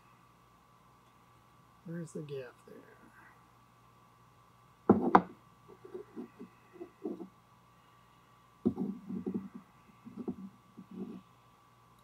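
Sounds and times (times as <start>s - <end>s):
piston handling rubs and knocks: 4.9s - 7.3s, 8.6s - 11.2s.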